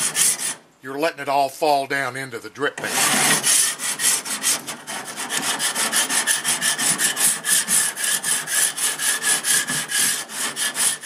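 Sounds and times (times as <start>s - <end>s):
grill scraper rasping on grill grate: 0.0s - 0.6s, 2.8s - 11.0s.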